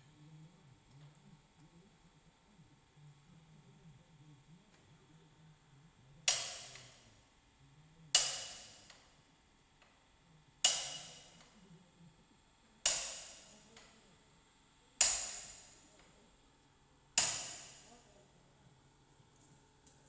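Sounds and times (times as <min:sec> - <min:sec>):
hammer striking steel: 0:06.3 - 0:07.0, 0:08.2 - 0:09.0, 0:10.6 - 0:11.5, 0:12.9 - 0:13.7, 0:15.0 - 0:15.9, 0:17.2 - 0:18.0.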